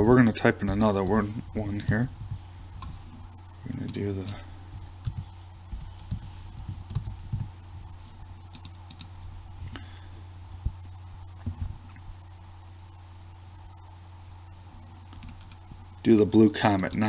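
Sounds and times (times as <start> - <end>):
steady low hum: 0.0 - 17.0
computer keyboard typing: 0.8 - 2.9, 3.7 - 7.6, 8.4 - 9.1, 15.1 - 17.0.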